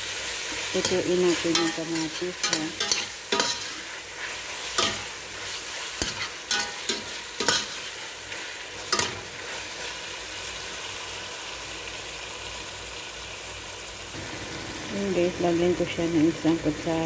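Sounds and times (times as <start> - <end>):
tomatoes sizzling in oil: 0.0 - 17.0
metal spoon scraping a pot: 0.8 - 5.1, 6.0 - 7.9.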